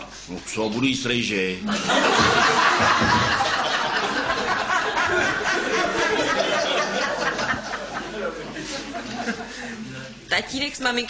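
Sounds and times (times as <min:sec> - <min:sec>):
group of people laughing: 0:01.6 - 0:10.1.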